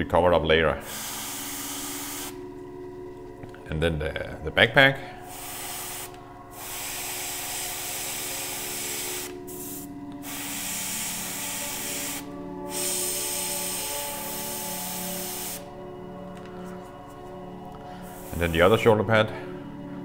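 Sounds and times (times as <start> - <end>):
airbrush spraying hiss: 0.8 - 2.4, 5.2 - 15.7, 18.0 - 18.9.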